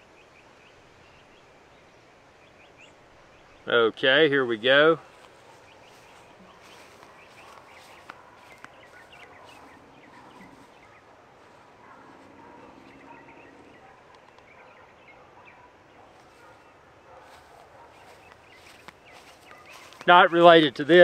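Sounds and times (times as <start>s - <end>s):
small birds chirping: 4.6s - 21.0s.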